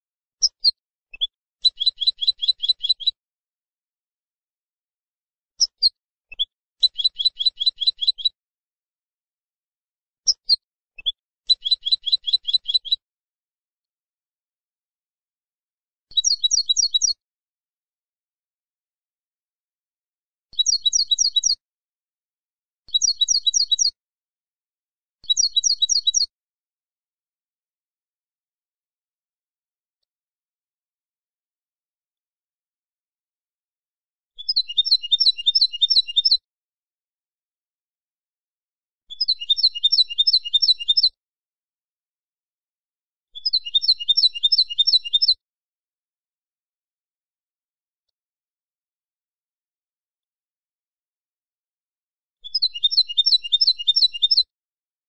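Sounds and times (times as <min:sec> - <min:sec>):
goldfinch singing: 0:00.5 - 0:03.2, 0:05.6 - 0:08.4, 0:11.5 - 0:13.0, 0:16.1 - 0:17.2, 0:20.6 - 0:21.6, 0:22.9 - 0:24.0, 0:25.2 - 0:26.3, 0:34.4 - 0:36.4, 0:39.1 - 0:41.2, 0:43.4 - 0:45.4, 0:52.4 - 0:54.5.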